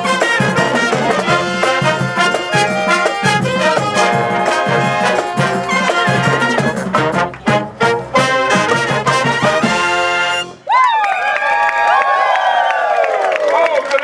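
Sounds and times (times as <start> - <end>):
marching band playing: 0.0 - 10.7.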